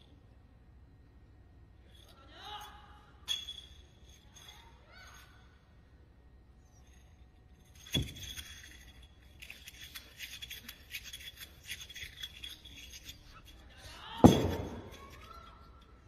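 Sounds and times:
light clinking and rattling clicks: 6.8s - 16.0s.

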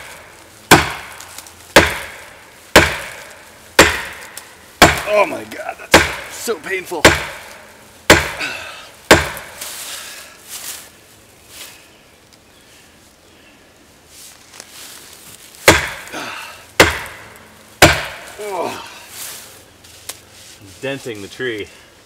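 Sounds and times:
axe handle whacking tree trunk: 0.0s - 5.3s, 5.9s - 6.4s, 7.0s - 8.5s, 9.1s - 9.7s, 15.6s - 16.1s, 16.8s - 17.2s, 17.8s - 18.4s.

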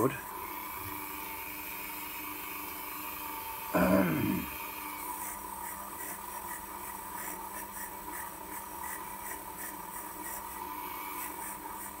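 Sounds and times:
rotary tool whining: 0.0s - 12.0s
bit scratching metal gear: 5.1s - 12.0s.

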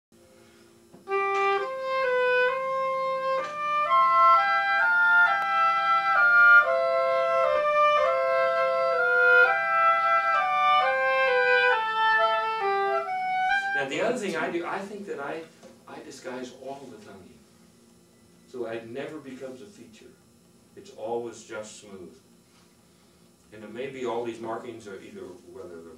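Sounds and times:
oboe duet: 1.0s - 14.8s.

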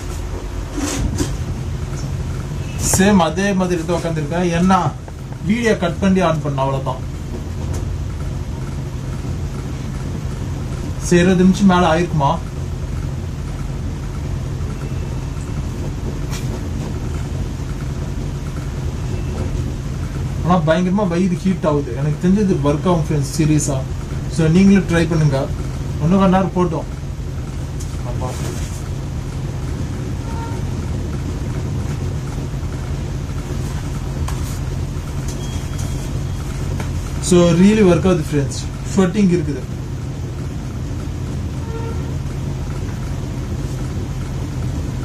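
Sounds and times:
mechanical hum and rumble: 0.0s - 45.0s
fabric rustling: 33.4s - 37.2s.

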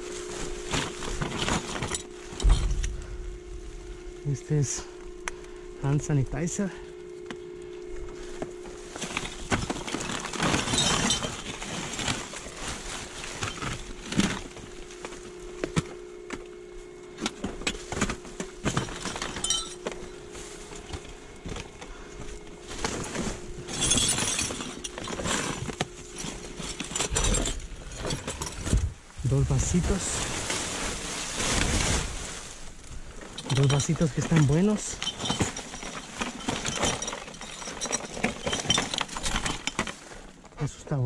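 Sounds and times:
plastic items clinking: 0.0s - 3.5s, 8.2s - 16.5s, 17.1s - 40.5s
plastic bags crinkling: 0.0s - 5.8s, 8.2s - 15.8s, 17.3s - 40.5s
steady hum: 0.0s - 41.0s.

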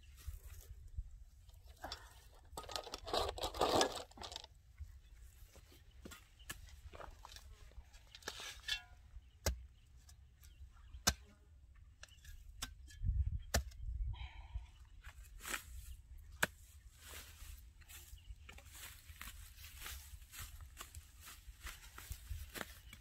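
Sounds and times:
soil clods crumbling and rustling: 1.4s - 4.6s.

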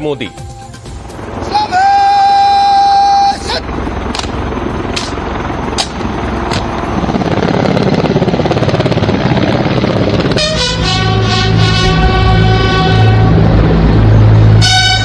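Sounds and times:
helicopter rotors thudding: 0.7s - 15.0s
held musical chord: 10.2s - 15.0s.

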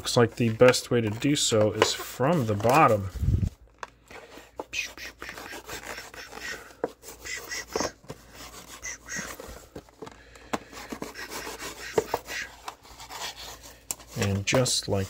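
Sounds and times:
knife scraping plastic pack: 0.0s - 3.1s, 3.7s - 15.0s.

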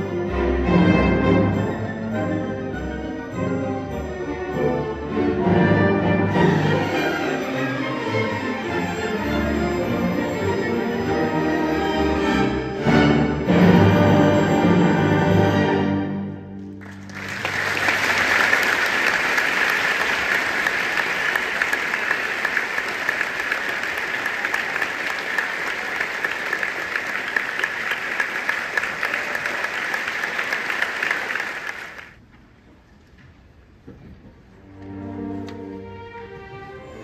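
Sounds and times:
audience applause: 16.7s - 32.2s.

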